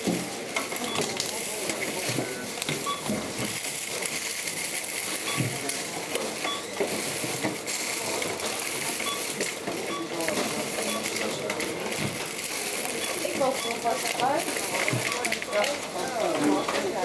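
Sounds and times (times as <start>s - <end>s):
checkout scanner beeps: 0.0s - 17.0s
goods and coins rattling: 0.6s - 17.0s.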